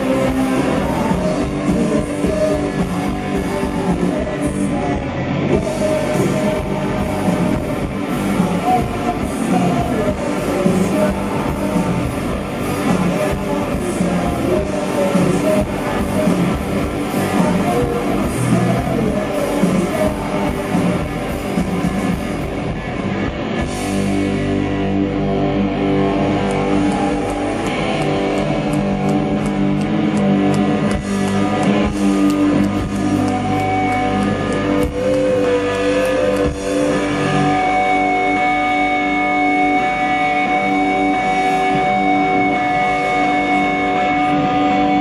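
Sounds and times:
long held guitar tones: 0:00.0 - 0:45.0
rock band playing live: 0:00.0 - 0:45.0.

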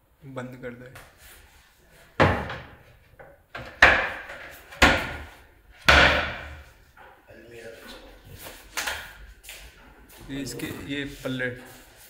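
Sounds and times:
cabinet doors knocking shut: 0:02.2 - 0:02.9, 0:03.6 - 0:06.7.

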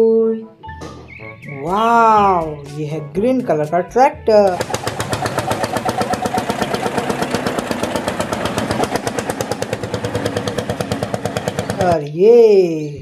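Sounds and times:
tractor engine running: 0:04.3 - 0:12.1.

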